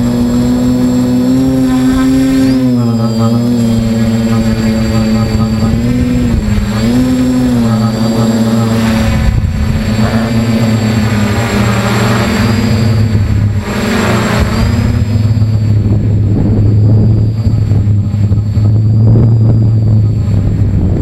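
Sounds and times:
drone motors and propellers buzzing: 0.0 - 21.0.

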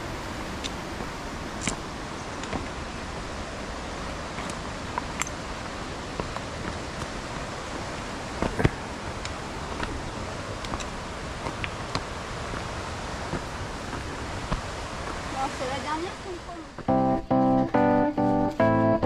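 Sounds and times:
river rushing: 0.0 - 16.9
trekking pole tips clicking: 1.6 - 2.7, 4.4 - 5.4, 8.4 - 10.0, 10.6 - 12.7
footsteps on loose rocks: 4.2 - 15.3.

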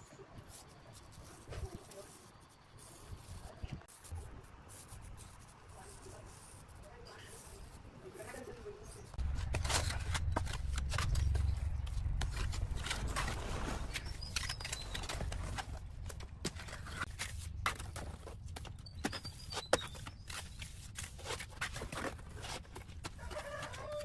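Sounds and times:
steady low rumble: 9.2 - 16.8.

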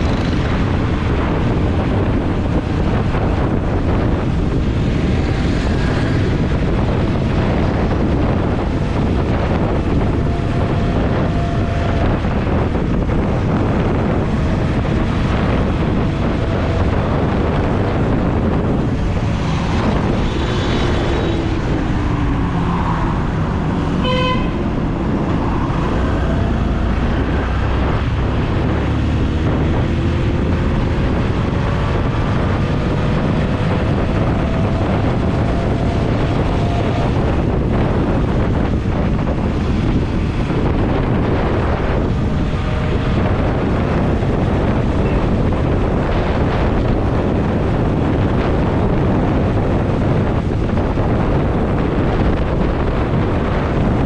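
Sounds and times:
motorcycle engine: 0.0 - 54.0
passing vehicles: 0.0 - 54.0
wind rushing on microphone: 0.0 - 54.0
vehicle horn honk: 24.0 - 24.7.

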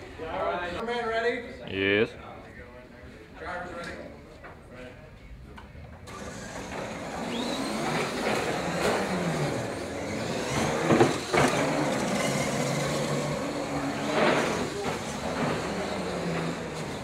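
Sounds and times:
toy truck motors whining: 6.1 - 17.0.

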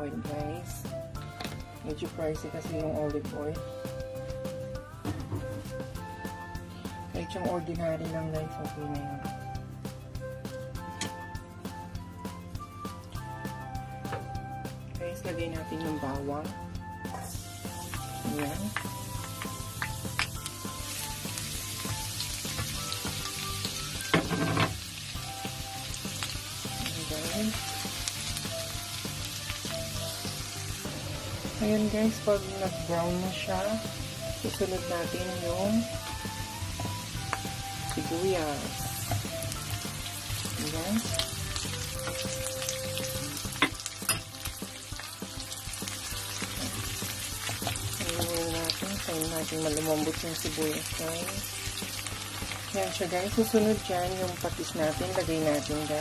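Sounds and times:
garlic sizzling in hot oil: 17.0 - 56.0.

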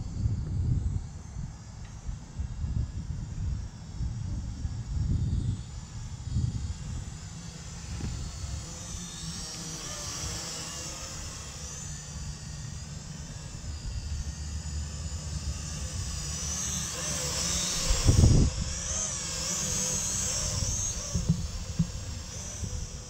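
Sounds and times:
wind on microphone: 0.0 - 9.2, 17.5 - 23.0
toy drone propellers whining: 0.0 - 23.0.

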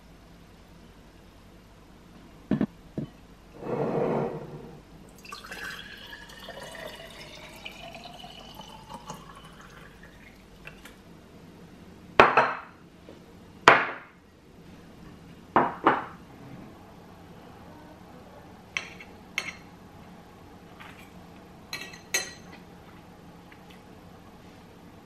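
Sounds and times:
water pouring into glass jar: 5.2 - 10.4.

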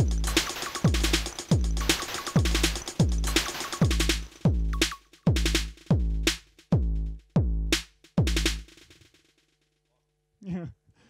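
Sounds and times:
hi-hat ticks: 0.0 - 6.8
electronic kick drum hits: 0.0 - 8.7.

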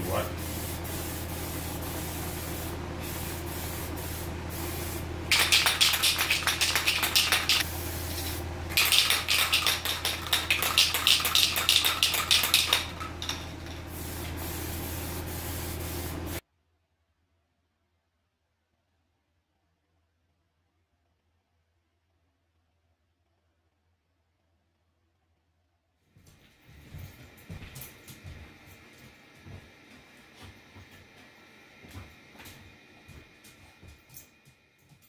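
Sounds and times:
aerosol paint spraying hisses: 0.1 - 16.4.

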